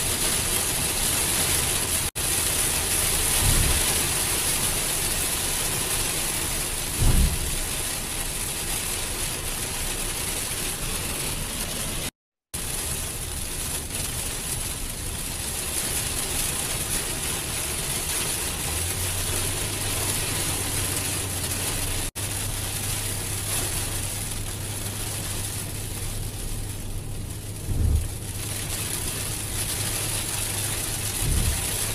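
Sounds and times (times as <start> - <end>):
heavy rain on a moving car: 0.0 - 31.9
road noise inside a car: 0.0 - 31.9
short low thump: 3.4 - 3.9, 7.0 - 7.8, 27.7 - 28.2, 31.2 - 31.7
car engine running: 18.3 - 31.9
steady low hum: 27.6 - 28.3.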